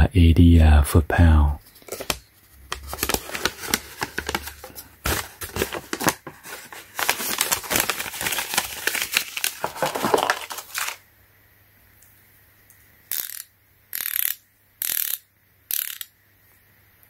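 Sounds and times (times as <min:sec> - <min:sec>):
paper rustling and crinkling: 0:01.6 - 0:11.0.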